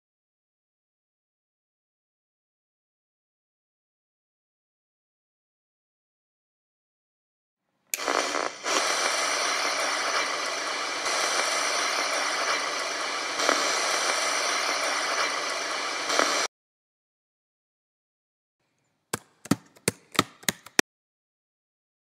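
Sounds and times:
crackling static hiss: 8.0s - 16.5s.

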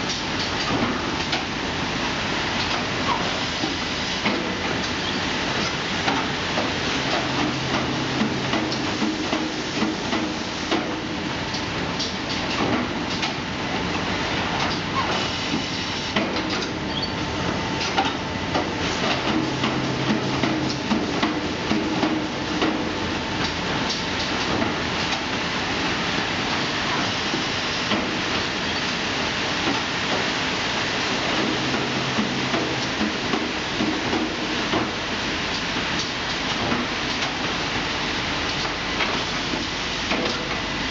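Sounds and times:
machinery running: 5.4s - 11.9s, 16.4s - 24.6s, 29.1s - 35.4s
sharp mechanical clacks and knocks: 38.5s - 40.6s.

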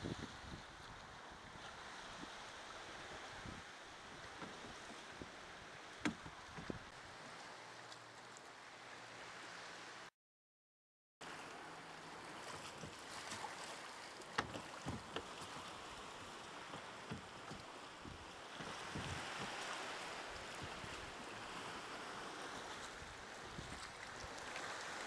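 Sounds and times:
water lapping against rocks: 11.2s - 25.0s.

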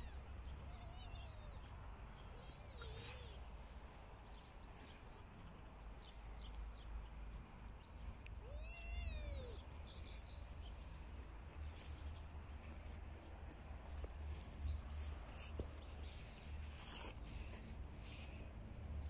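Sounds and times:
cat meowing: 0.0s - 1.7s, 2.4s - 3.4s, 8.4s - 9.6s.

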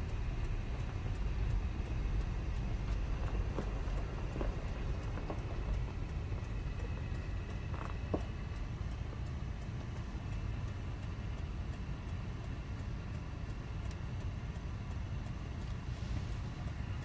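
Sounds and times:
faint high ticks: 0.0s - 17.0s
steady low rumble: 0.0s - 17.0s.

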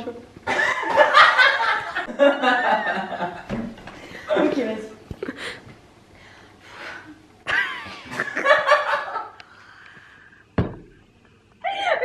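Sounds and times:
sharp thump: 10.6s - 11.0s
woman giggling muffled: 11.6s - 12.0s.

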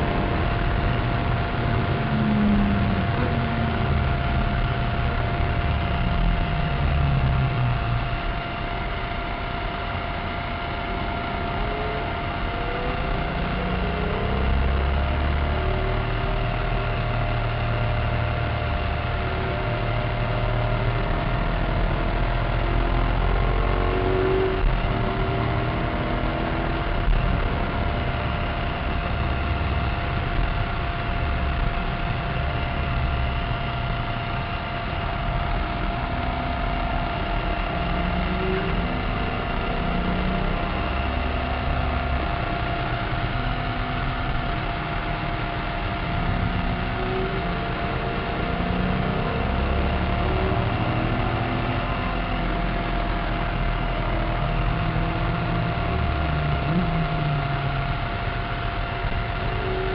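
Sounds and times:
car engine running hard: 0.0s - 59.9s
road and wind noise: 0.0s - 59.9s.

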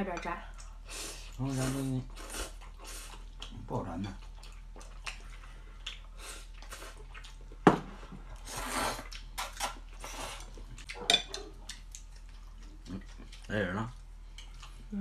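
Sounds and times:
chewing: 0.5s - 7.6s, 8.3s - 15.0s
slurping noodles: 8.4s - 9.1s.

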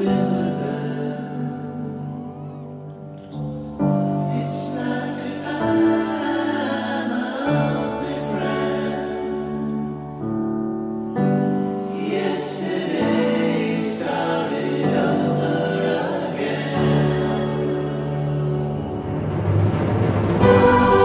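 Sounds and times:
choir-like singing: 0.0s - 10.2s, 11.1s - 21.0s
long held chords: 16.2s - 21.0s.

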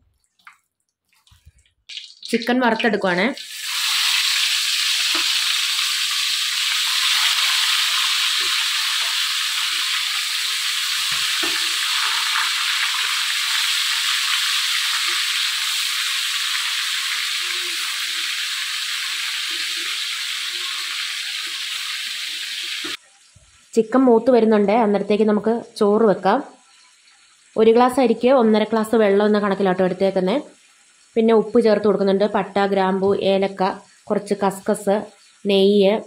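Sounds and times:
chicken sizzling in hot oil: 1.9s - 23.8s, 26.5s - 27.7s, 30.4s - 31.6s.

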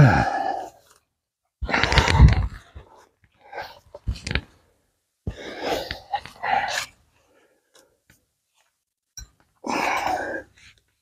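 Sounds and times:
man straining breaths: 0.0s - 0.8s, 9.6s - 10.6s.

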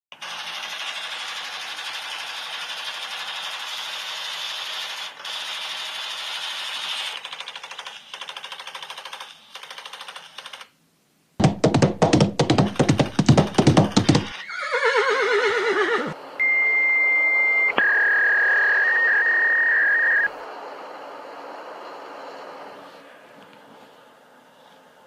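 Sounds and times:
rapid loud clattering knocks: 11.4s - 14.4s
horse whinnying: 13.9s - 16.2s
high steady whistle: 16.4s - 20.6s.

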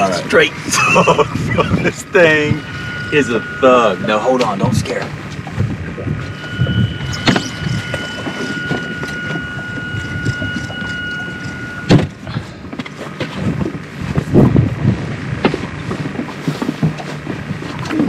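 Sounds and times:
high-pitched electric whine: 0.0s - 12.3s
low hull and wind noise: 0.0s - 18.0s.

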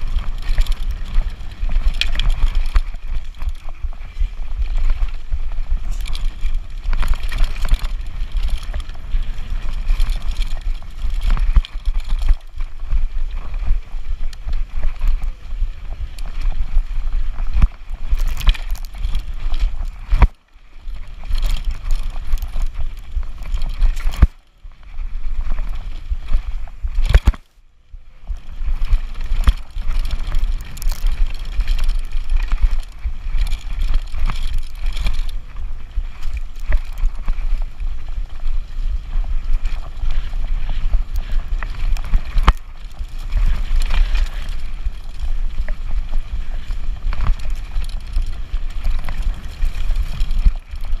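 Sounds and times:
wind buffeting microphone: 0.0s - 24.3s
bike rattling over bumps: 0.0s - 27.5s, 28.1s - 51.0s.

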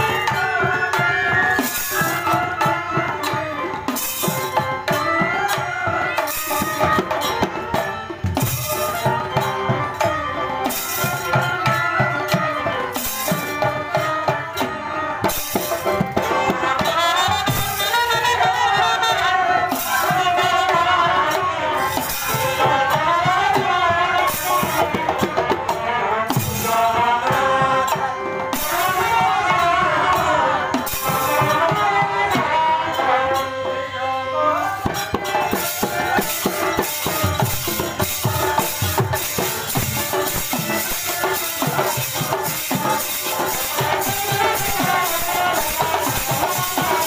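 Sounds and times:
wind instrument gliding melody: 0.0s - 25.6s, 27.2s - 47.0s
hand drums: 0.0s - 33.6s, 34.6s - 47.0s
jingling beat: 34.8s - 47.0s.

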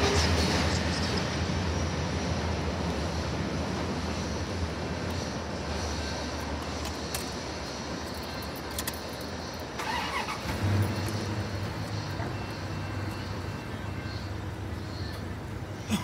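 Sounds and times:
cars passing on road: 0.0s - 16.0s
vehicle engine low hum: 0.0s - 16.0s.

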